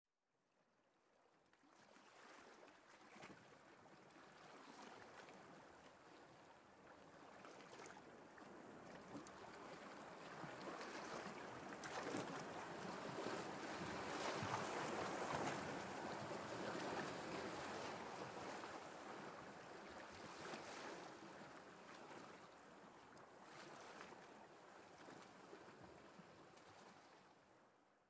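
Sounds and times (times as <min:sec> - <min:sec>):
wind: 0:01.4 - 0:28.0
sea waves washing: 0:10.6 - 0:21.0.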